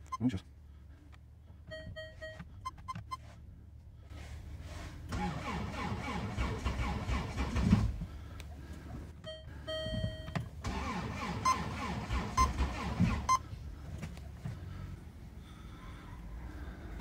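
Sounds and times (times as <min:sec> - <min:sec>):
car starter cranking engine: 0:05.0 - 0:08.2, 0:09.8 - 0:13.5.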